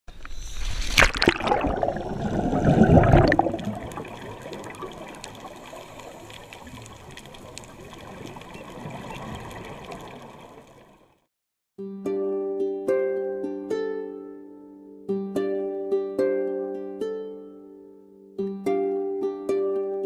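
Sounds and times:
underwater hiss: 0.1s - 10.9s
rush of water and bubbles: 0.1s - 11.3s
faint underwater clicks: 0.2s - 11.1s.

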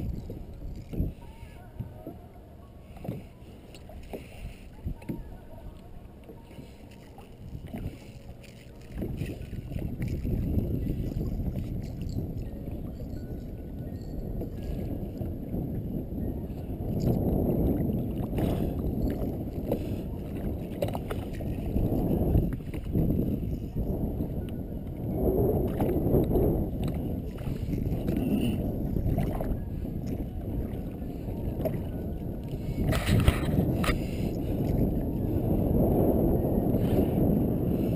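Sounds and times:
water splashing around kayak: 0.0s - 37.9s
wind noise on microphone: 0.0s - 37.9s.

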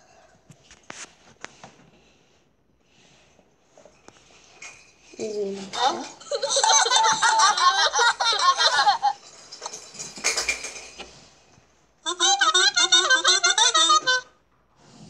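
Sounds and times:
cartoon characters giggling and chattering: 5.8s - 9.2s, 12.0s - 14.4s.

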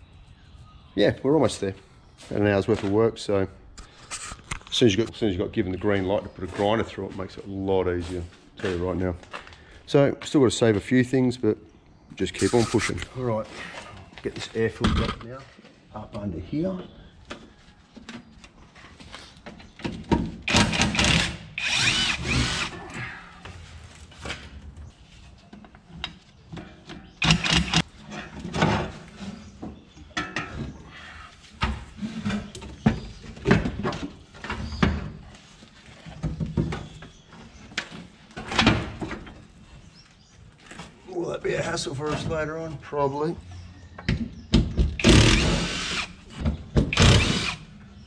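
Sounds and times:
cordless drill running: 20.5s - 22.8s, 45.0s - 46.2s, 46.9s - 47.6s.

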